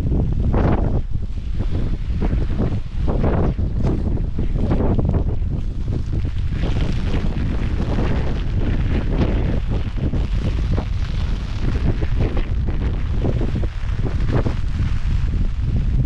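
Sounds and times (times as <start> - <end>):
strong wind buffeting microphone: 0.0 - 16.0.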